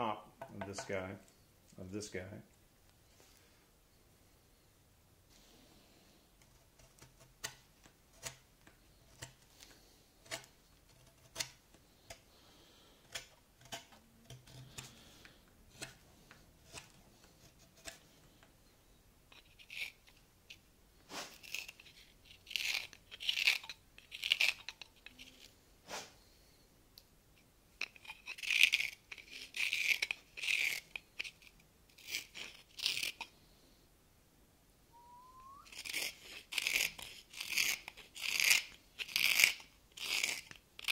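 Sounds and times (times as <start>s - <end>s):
hook knife scraping wood: 6.4s - 18.5s, 19.3s - 26.1s, 27.8s - 33.4s, 35.7s - 40.9s
knife paring cuts in wood: 6.5s - 8.4s, 15.7s - 16.0s.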